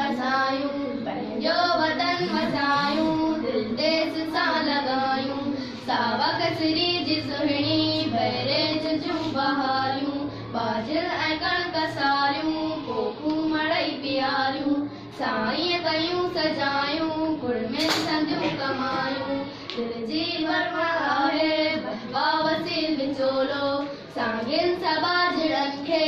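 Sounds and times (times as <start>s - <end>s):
girls singing: 0.0s - 26.0s.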